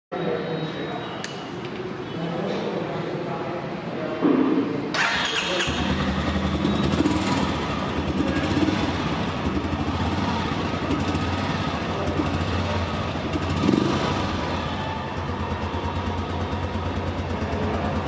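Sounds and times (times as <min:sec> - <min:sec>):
motorcycle engine idling: 0:05.0 - 0:18.0.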